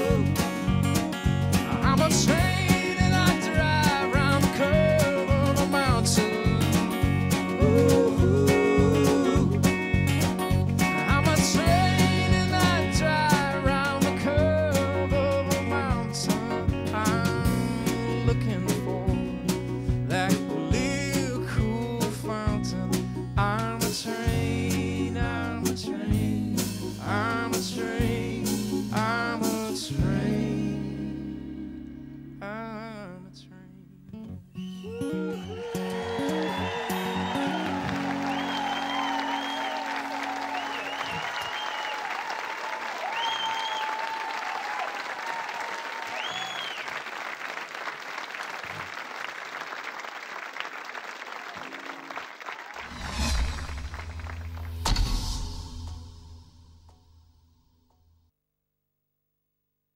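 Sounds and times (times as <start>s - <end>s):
person singing: 0.0s - 0.6s, 1.6s - 9.9s, 11.0s - 19.4s, 20.1s - 33.8s
strummed acoustic guitar: 0.0s - 31.3s
folk-rock band playing: 0.0s - 32.4s, 34.9s - 41.5s
audience applauding: 35.3s - 54.9s.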